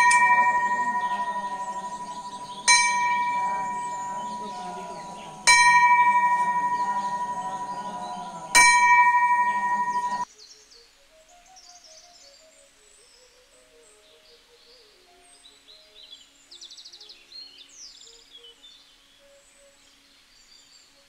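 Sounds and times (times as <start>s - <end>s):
bell ringing: 0.0s - 10.3s.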